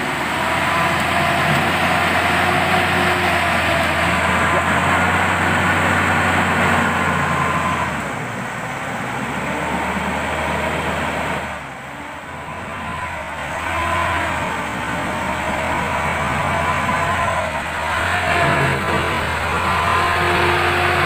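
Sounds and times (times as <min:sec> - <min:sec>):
engine revving hard: 0:00.0 - 0:08.0, 0:12.3 - 0:21.0.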